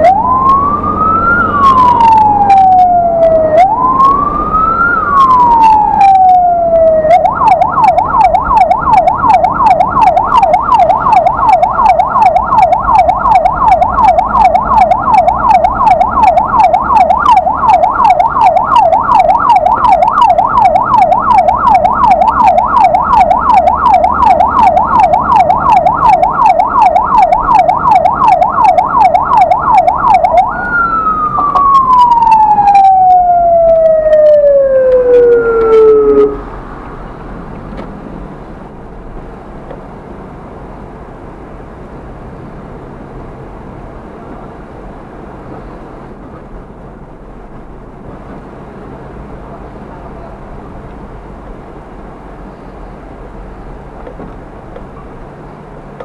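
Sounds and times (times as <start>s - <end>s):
ambulance siren: 0.0s - 36.5s
engine and road rumble: 0.0s - 56.0s.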